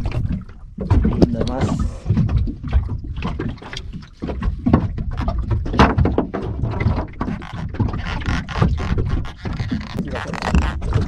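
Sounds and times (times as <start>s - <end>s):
small waves slapping boat hull: 0.0s - 11.0s
wind rumbling on microphone: 0.0s - 11.0s.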